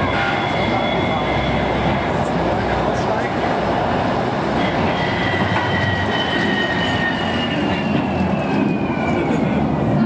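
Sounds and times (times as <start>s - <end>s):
train rumbling on rails: 0.0s - 10.0s
wheel squeal: 4.6s - 9.6s.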